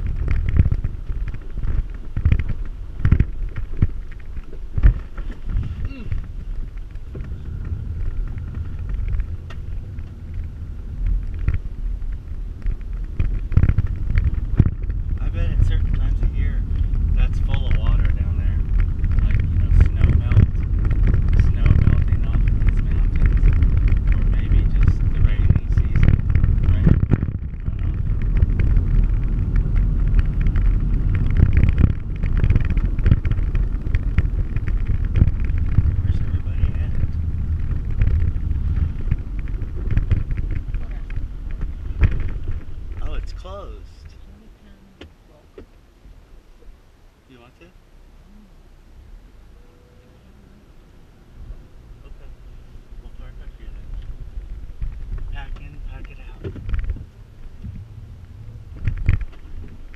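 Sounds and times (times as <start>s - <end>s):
knocks and rattles: 0.0s - 44.2s, 53.5s - 59.9s
vehicle rumbling on dirt trail: 0.0s - 59.9s.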